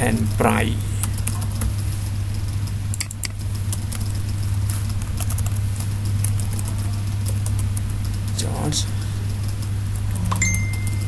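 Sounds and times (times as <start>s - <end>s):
low electrical hum: 0.0s - 11.0s
computer keyboard typing: 2.3s - 11.0s.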